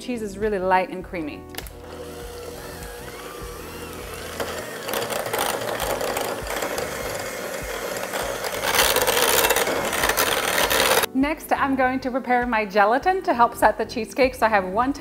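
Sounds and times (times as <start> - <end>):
hand mixer motor whine: 1.6 - 11.1
beaters churning cream cheese: 1.7 - 11.1.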